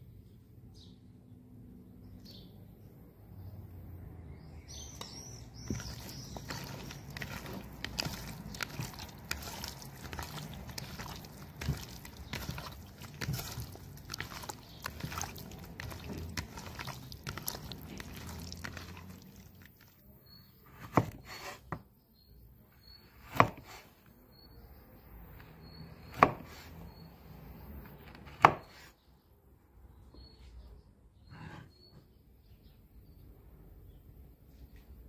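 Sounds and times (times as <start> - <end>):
hand squeezing wet meat: 5.5 - 20.0
faint bird chirps: 22.0 - 35.0.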